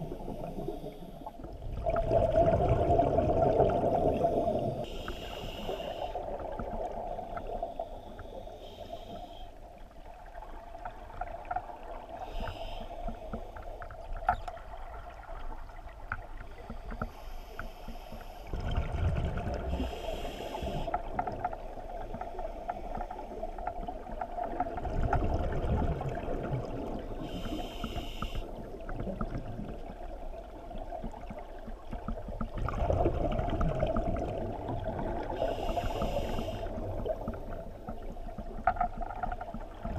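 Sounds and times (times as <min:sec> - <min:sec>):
exhaled bubbles rumbling: 0:00.0 - 0:04.9, 0:18.4 - 0:20.1, 0:20.7 - 0:27.5, 0:28.6 - 0:39.9
hissing regulator inhalations: 0:04.9 - 0:06.2, 0:16.6 - 0:18.5, 0:19.7 - 0:21.0, 0:27.2 - 0:28.5, 0:35.3 - 0:36.8.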